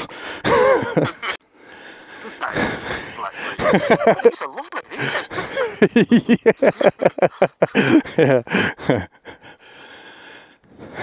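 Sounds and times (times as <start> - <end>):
men laughing: 0.0 - 1.4, 2.1 - 9.6.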